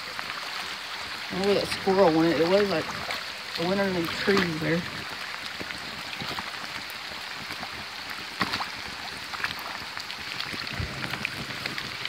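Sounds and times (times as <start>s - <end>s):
rushing flooded creek: 0.0s - 12.0s.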